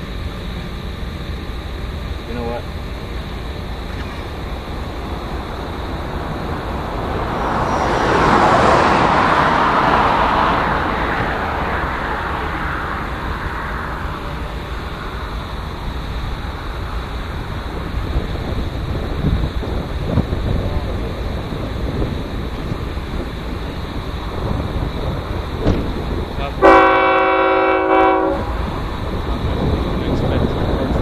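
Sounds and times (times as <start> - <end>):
steady low rumble: 0.0 - 26.6, 28.2 - 31.0
vehicle passing at speed: 3.7 - 20.6.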